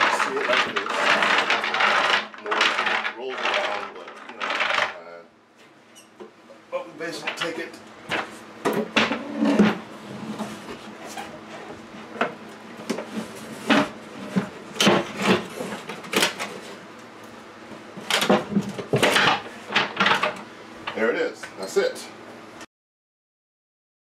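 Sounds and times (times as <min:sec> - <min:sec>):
wooden knocks and scrapes: 0:00.0 - 0:05.0, 0:07.2 - 0:16.8
rollers rattling and rumbling: 0:00.0 - 0:05.3.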